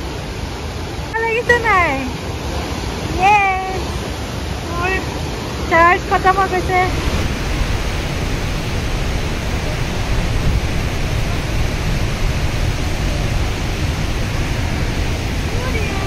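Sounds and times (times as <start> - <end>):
river rapids and waterfall rushing: 0.0 - 16.0.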